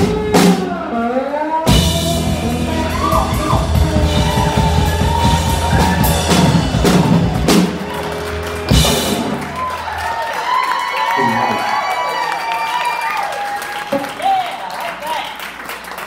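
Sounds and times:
blues band playing: 0.0s - 10.7s
hard drum accents: 1.7s - 9.8s.

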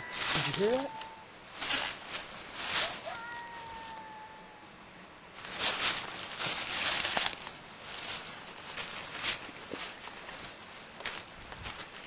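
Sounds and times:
footsteps in dry leaves: 0.0s - 4.0s, 5.3s - 12.0s.

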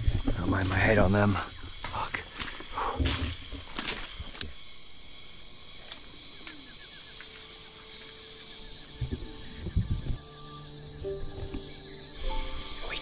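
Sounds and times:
insects buzzing: 0.0s - 13.0s
quick repeated chirping: 12.0s - 13.0s.

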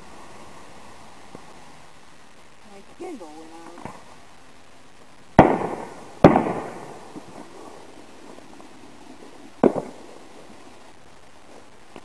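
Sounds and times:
firework bangs: 5.0s - 11.9s.

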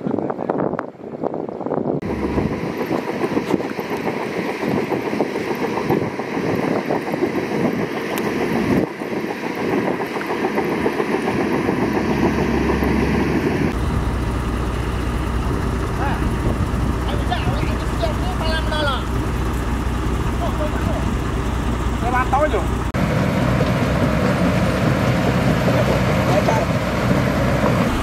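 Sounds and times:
deep loud low rumble: 2.0s - 3.9s, 9.7s - 28.0s
diesel construction machinery running: 2.0s - 28.0s.

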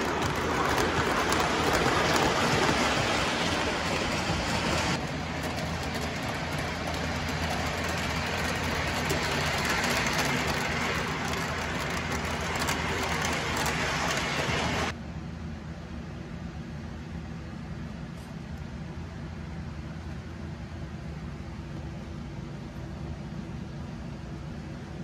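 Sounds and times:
model train wheels rumbling on rails: 0.0s - 14.9s.

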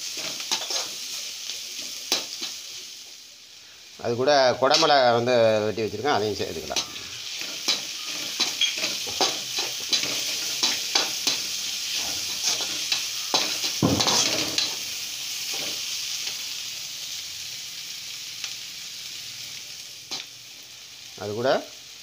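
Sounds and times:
vegetables sizzling in oil: 0.0s - 22.0s
metal ladle scraping pan: 6.7s - 14.8s.

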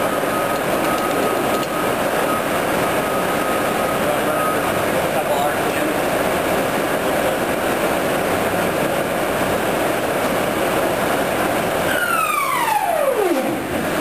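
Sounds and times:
whine falling in pitch: 11.7s - 14.0s.

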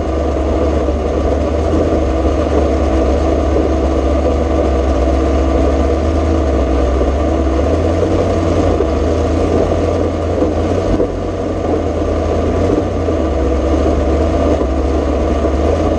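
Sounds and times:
truck engine running at low revs: 0.0s - 15.9s.

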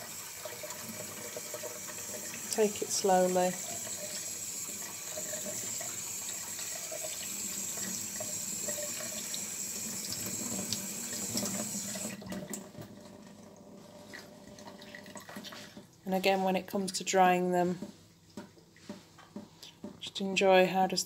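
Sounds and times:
tap water running into sink: 0.0s - 15.9s.

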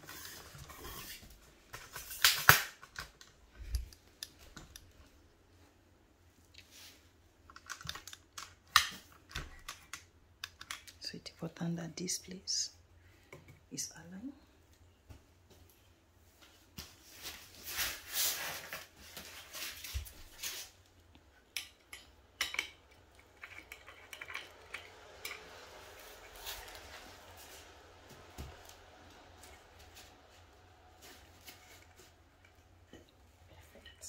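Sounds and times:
small metal clinks and knocks: 21.5s - 25.6s.

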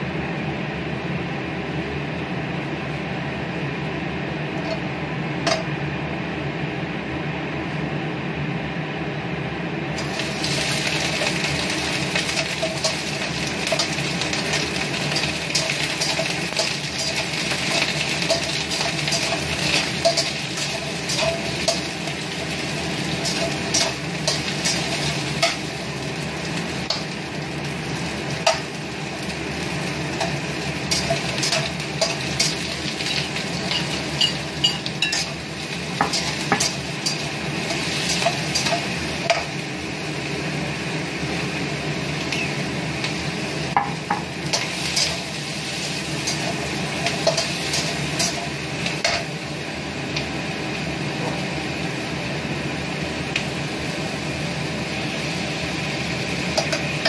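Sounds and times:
food sizzling: 10.0s - 57.0s
metal spatula scraping a wok: 44.5s - 49.3s.

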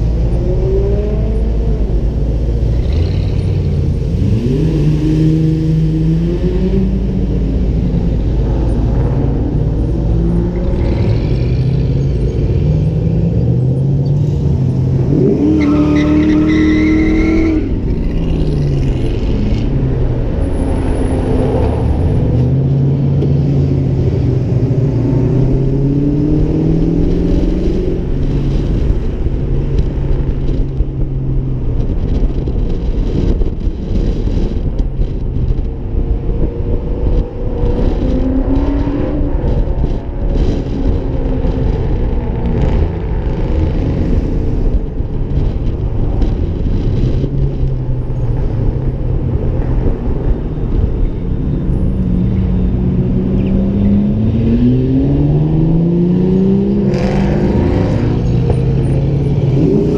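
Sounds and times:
wind buffeting microphone: 17.0s - 59.9s.

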